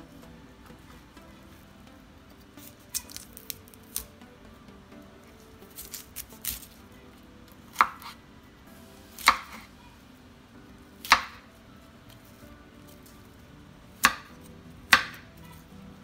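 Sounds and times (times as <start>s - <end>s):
knife chopping on cutting board: 7.7s - 8.2s, 9.2s - 9.7s, 11.0s - 11.4s, 14.0s - 15.2s.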